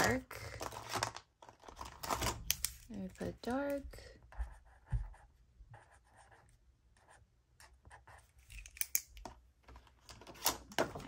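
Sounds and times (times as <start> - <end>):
marker pen scratching on paper: 3.4 - 8.5.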